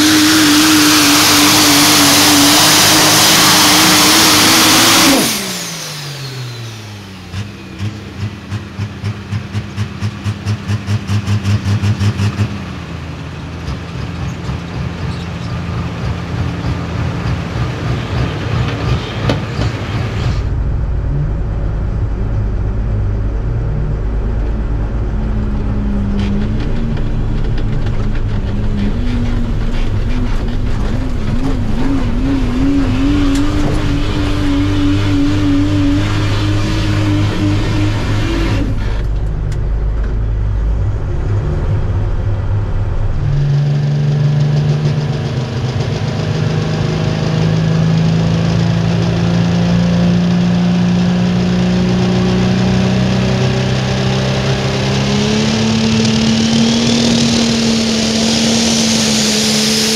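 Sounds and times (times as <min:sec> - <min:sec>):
diesel truck engine under load: 0:00.0 - 0:59.9.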